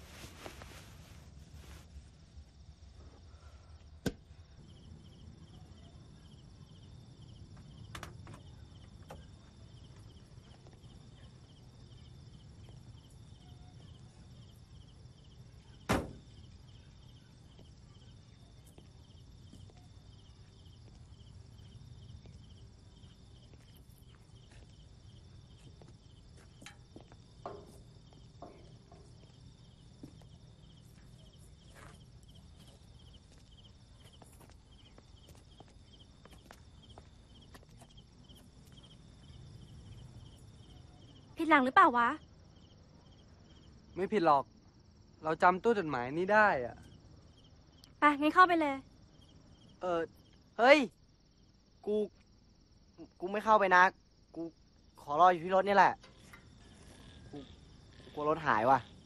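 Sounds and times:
insects chirping: 0.0s - 59.0s
soft knocks: 26.6s - 29.3s.

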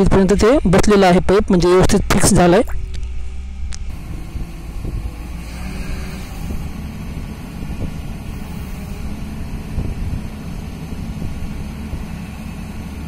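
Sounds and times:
excavator engine idling: 2.7s - 13.0s.

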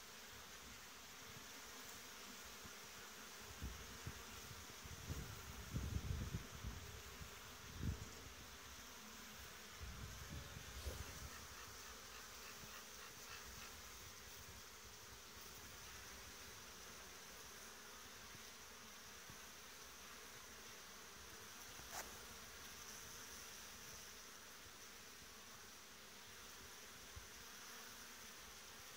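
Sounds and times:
honeybees buzzing: 0.0s - 28.9s.

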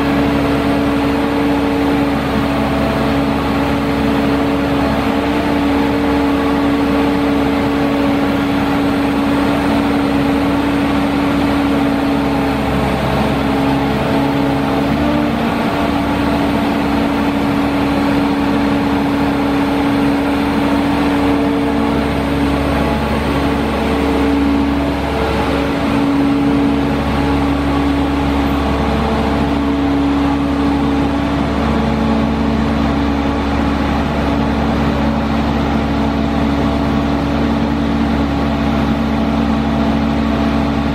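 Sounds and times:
diesel engine under hydraulic load: 0.0s - 40.9s.

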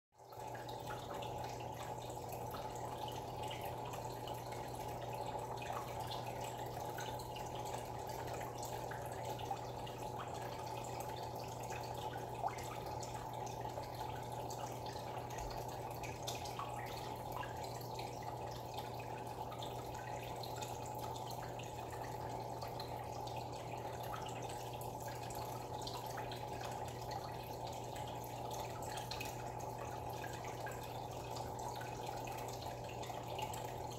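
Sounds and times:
aquarium water bubbling: 0.2s - 33.9s
small water drips: 0.2s - 33.9s.

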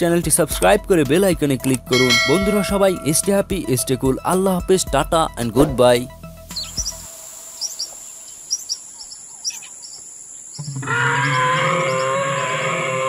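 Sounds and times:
high-pitched insect whine: 6.4s - 13.0s
faint bird chirps: 6.5s - 12.4s
long low animal call: 10.6s - 13.0s.

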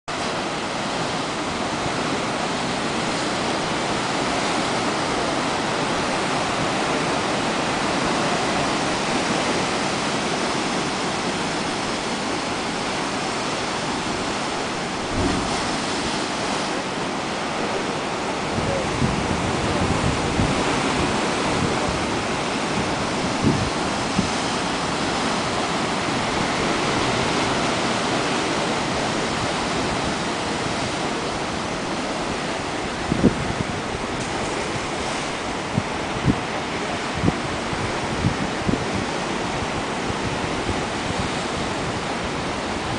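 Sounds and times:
surf breaking over rocks: 0.2s - 31.5s
low thumps: 15.0s - 16.0s.

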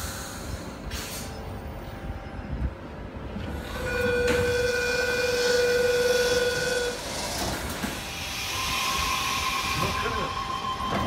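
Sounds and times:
train low rumble: 0.0s - 11.0s.

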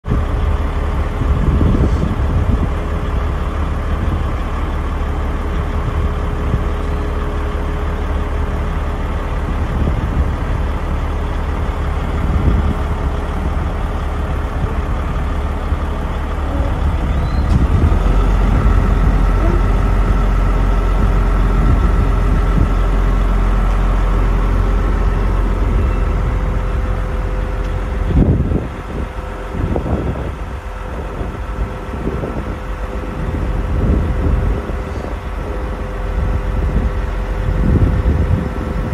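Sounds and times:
truck engine rumble: 0.0s - 38.9s
hydraulic whine: 9.8s - 31.0s.

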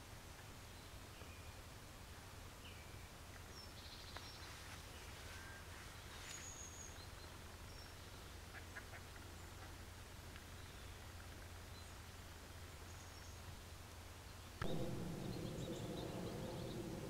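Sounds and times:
low steady hum: 9.1s - 17.0s.

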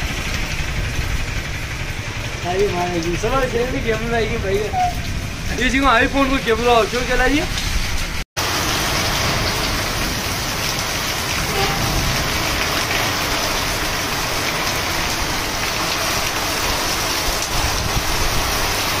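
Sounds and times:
heavy rain on road: 0.0s - 19.0s
strong wind: 4.7s - 19.0s.

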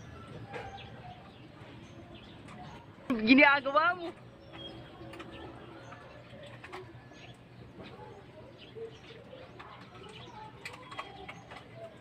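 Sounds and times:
clicks and knocks of fish handling: 9.5s - 12.0s.

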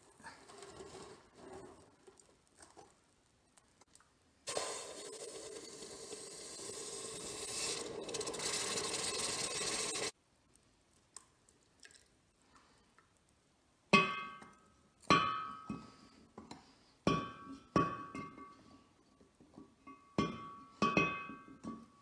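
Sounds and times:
hot metal sizzling in water: 4.5s - 10.2s.

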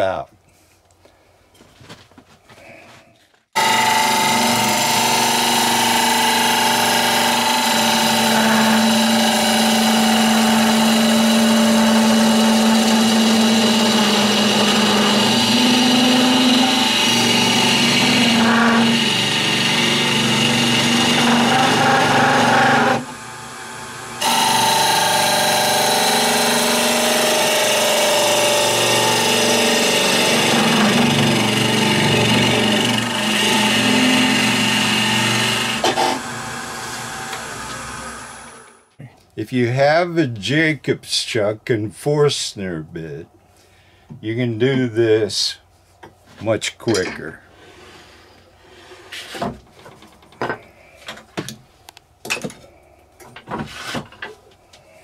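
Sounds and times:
gouge scraping spinning wood: 3.6s - 38.6s
wood lathe motor hum: 3.6s - 38.8s.

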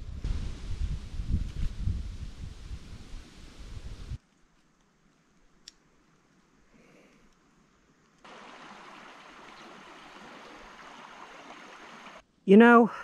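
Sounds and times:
river flowing over stones: 8.2s - 12.2s.

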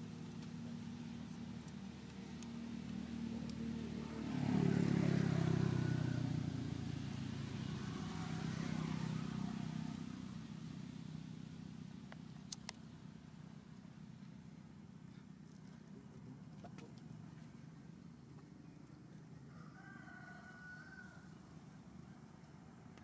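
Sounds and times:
vehicle engine running: 0.0s - 19.5s
sharp clicks: 12.1s - 12.8s.

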